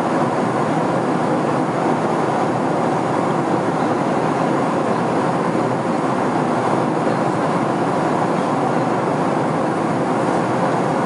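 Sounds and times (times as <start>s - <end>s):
airliner cabin noise: 0.0s - 11.0s.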